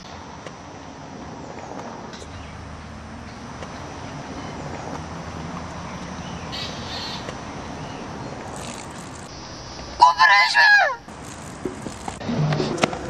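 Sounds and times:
outdoor background hum: 0:00.0 - 0:13.0
crow cawing: 0:10.0 - 0:11.1.

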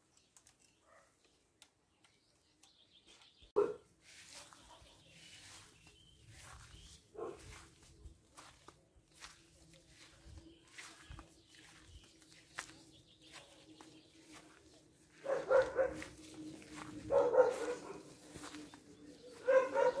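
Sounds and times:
dog barking: 0:00.8 - 0:01.2, 0:03.6 - 0:03.9, 0:07.1 - 0:07.6, 0:15.2 - 0:16.2, 0:17.0 - 0:18.2, 0:19.3 - 0:20.0.

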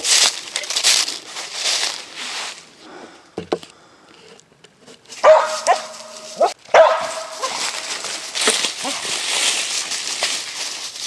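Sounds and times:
footsteps crunching dry leaves: 0:00.0 - 0:02.8, 0:05.1 - 0:11.0.

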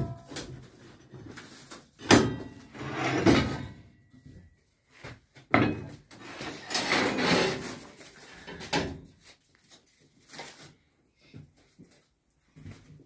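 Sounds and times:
metal scraping on workbench: 0:02.2 - 0:03.8, 0:05.6 - 0:07.9.

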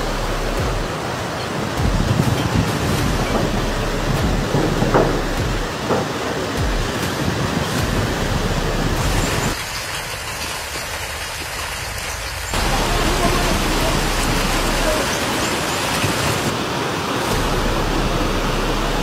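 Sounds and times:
floodwater rushing along street: 0:00.0 - 0:19.0
rain on wet road: 0:04.1 - 0:17.5.

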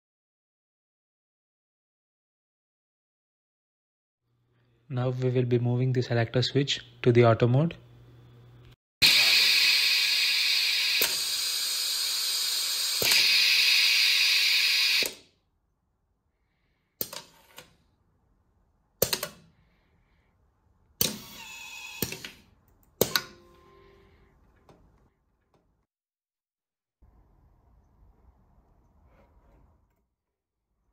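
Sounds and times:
electric screwdriver motor: 0:09.0 - 0:15.2, 0:21.0 - 0:22.4.

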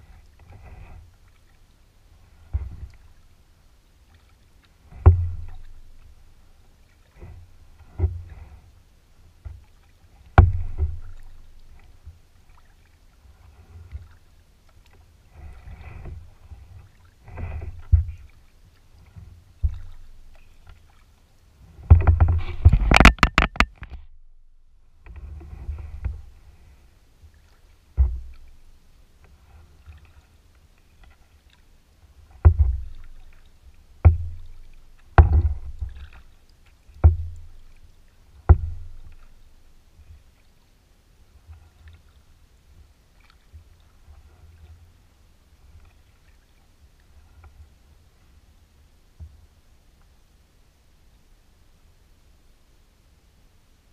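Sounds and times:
paddle swishing through water: 0:00.0 - 0:50.3
paddle knocking on plastic hull: 0:04.9 - 0:06.0, 0:10.3 - 0:11.4, 0:17.2 - 0:18.4, 0:19.2 - 0:20.8, 0:21.8 - 0:24.1, 0:28.0 - 0:28.6, 0:32.4 - 0:33.4, 0:34.0 - 0:36.2, 0:37.0 - 0:37.8, 0:38.4 - 0:39.4
sharp clattering knocks: 0:21.9 - 0:24.0.

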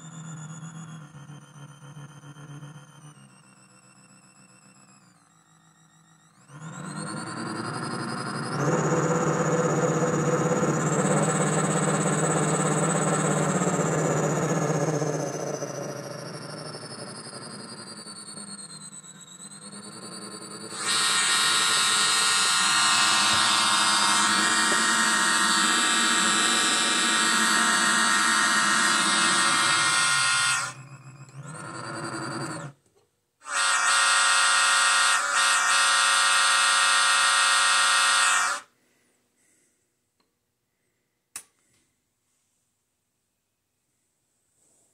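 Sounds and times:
electronic train horn blasts: 0:20.6 - 0:30.8, 0:33.4 - 0:38.7
click: 0:40.2 - 0:40.4, 0:41.3 - 0:41.9.

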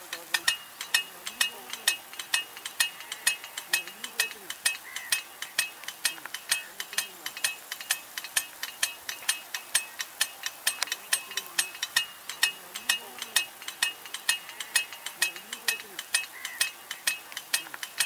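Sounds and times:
sprinkler arm clicking: 0:00.0 - 0:18.0.

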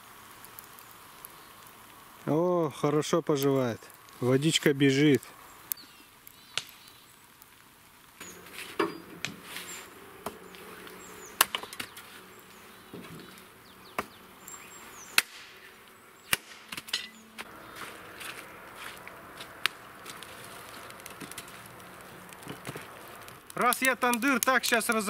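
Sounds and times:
hatchet chopping firewood: 0:11.4 - 0:12.1, 0:13.9 - 0:14.2, 0:15.1 - 0:17.5.

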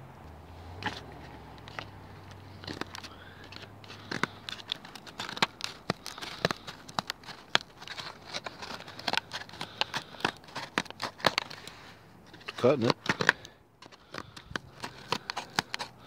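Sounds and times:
scissors snipping cardboard: 0:03.9 - 0:11.6, 0:12.4 - 0:16.0.

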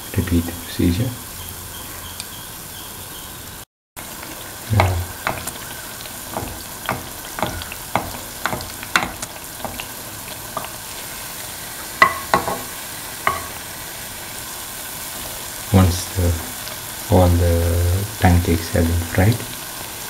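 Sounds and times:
batter sizzling in oil: 0:00.0 - 0:20.0
metal spoon scraping pan: 0:04.8 - 0:09.9.

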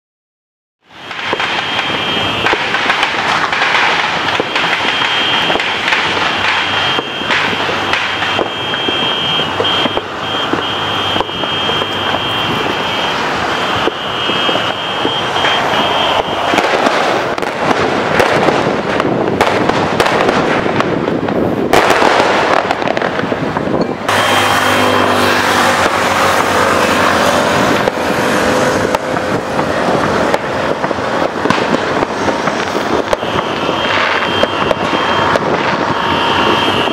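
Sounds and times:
fireworks and firecrackers crackling: 0:00.9 - 0:36.9
steady high tone: 0:24.1 - 0:25.3.

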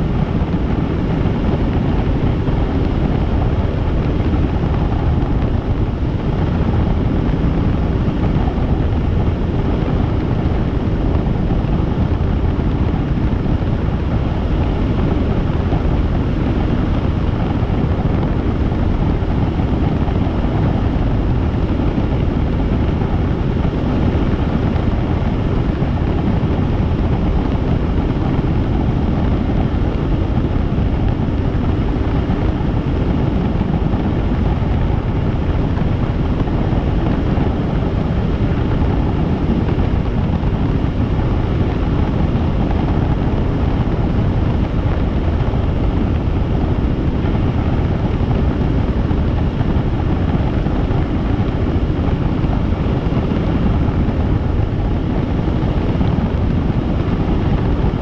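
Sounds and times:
helicopter rotor and engine rumble: 0:00.0 - 0:58.0
wind noise on microphone: 0:00.0 - 0:58.0.

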